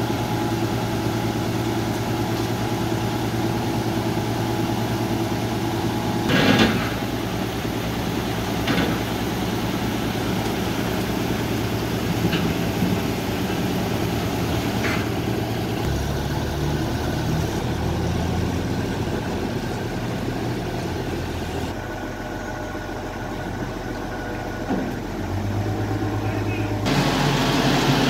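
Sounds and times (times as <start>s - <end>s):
diesel engines running: 0.0s - 28.0s.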